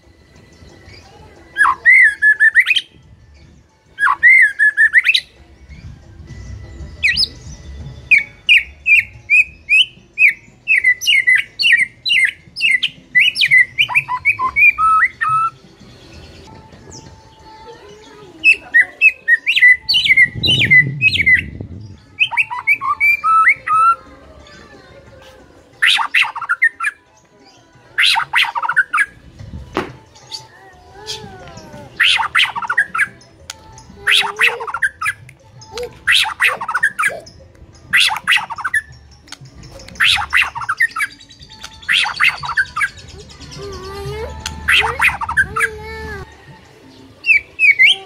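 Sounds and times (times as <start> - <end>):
bird singing whistled notes: 0.0 - 17.5, 18.4 - 24.1, 25.8 - 29.2, 30.2 - 45.6, 46.3 - 48.0
low rumble: 20.2 - 22.1
harsh buzzy bird calls: 25.7 - 27.0, 30.2 - 46.3.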